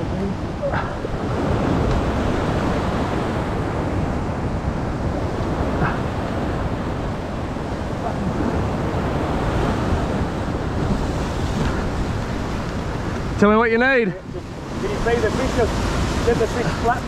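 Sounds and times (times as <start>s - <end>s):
waves breaking against rocks: 0.0s - 17.0s
wind buffeting microphone: 0.0s - 17.0s.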